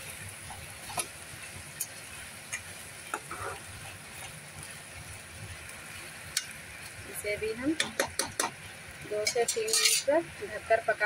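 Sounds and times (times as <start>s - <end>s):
food sizzling in a pan: 0.0s - 11.0s
metal spatula tapping and scraping pan: 7.6s - 10.2s.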